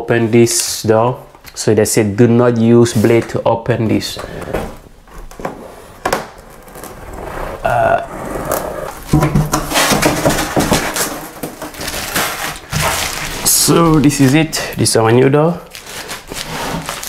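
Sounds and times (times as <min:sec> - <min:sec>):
packaging tearing and crinkling: 0:06.2 - 0:07.2, 0:08.5 - 0:14.8, 0:15.6 - 0:17.0
scattered knocks: 0:09.0 - 0:11.8.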